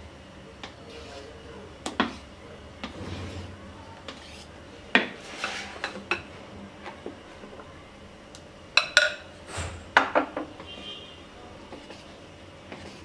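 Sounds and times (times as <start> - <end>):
utensil scraping mixing bowl: 0.6 - 6.3, 11.6 - 13.0.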